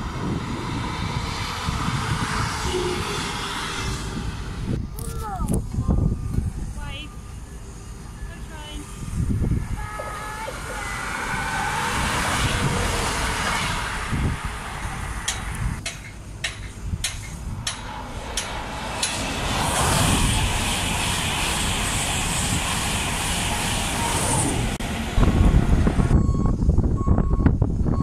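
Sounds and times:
wheel and rail noise with hiss: 0.0s - 27.9s
electric train passing at speed: 0.0s - 28.0s
sharp rail clicks: 15.2s - 19.7s.

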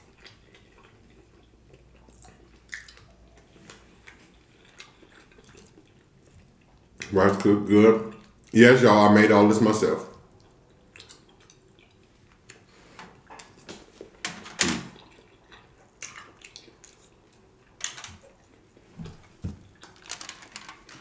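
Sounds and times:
chewing and mouth smacks: 0.0s - 7.5s, 10.1s - 14.2s, 15.0s - 20.0s.

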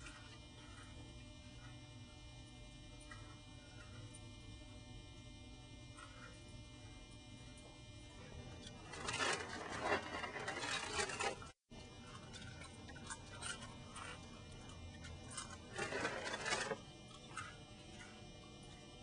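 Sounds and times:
crunching of cereal being chewed: 8.6s - 19.0s.

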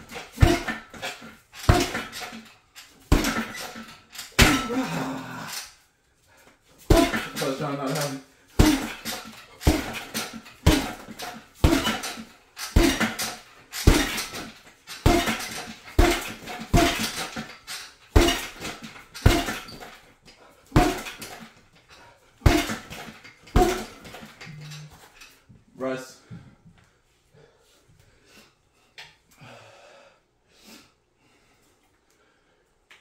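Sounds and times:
punches thudding on heavy bag: 0.0s - 5.2s, 6.8s - 20.0s, 20.7s - 21.6s, 22.4s - 24.4s
metal stand rattling: 0.0s - 5.7s, 6.8s - 25.4s.

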